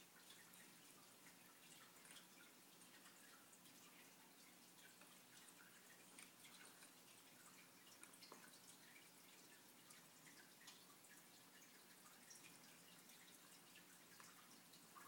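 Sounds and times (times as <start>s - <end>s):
soft scattered ticks: 0.0s - 15.0s.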